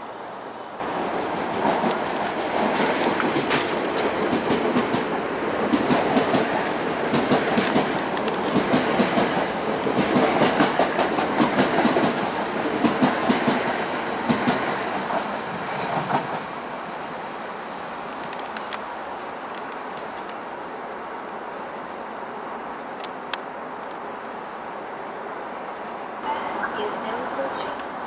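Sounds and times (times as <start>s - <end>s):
train wheels clattering over rail joints: 1.0s - 16.6s.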